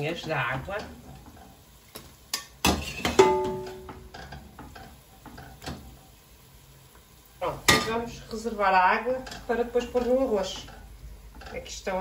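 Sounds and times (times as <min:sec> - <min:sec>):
metal utensil knocking on pot: 0:02.6 - 0:04.9
ringing metal clang: 0:03.2 - 0:04.1.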